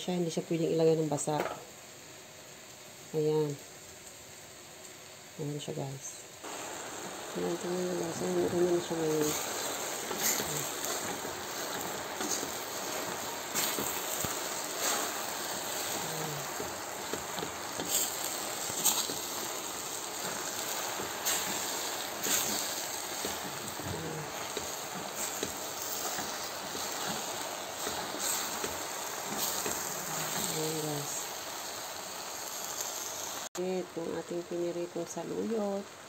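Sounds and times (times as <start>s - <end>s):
leaves sizzling in hot oil: 0.0s - 36.0s
oil crackling and popping: 6.5s - 33.5s.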